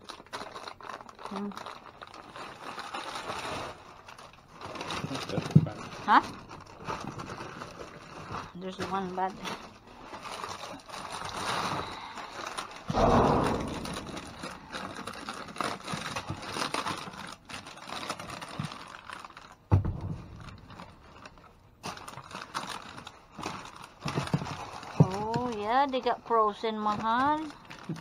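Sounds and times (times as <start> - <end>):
scraping and rustling of oranges: 0.0 - 19.6, 20.2 - 28.0
sharp knock: 12.9 - 14.8
heavy bump: 12.9 - 15.3.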